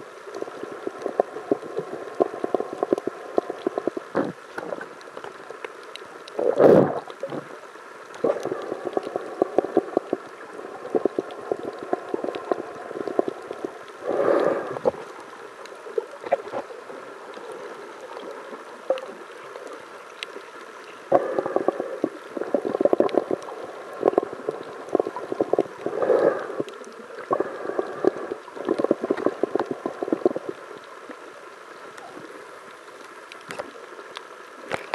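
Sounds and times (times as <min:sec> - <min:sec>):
muffled underwater sloshing: 0:00.0 - 0:34.9
gurgling bursts: 0:06.4 - 0:07.6.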